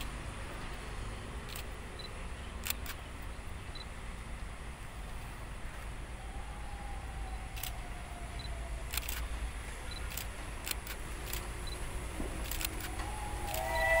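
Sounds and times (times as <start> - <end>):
camera shutters clicking: 8.9 - 9.2, 12.4 - 13.7.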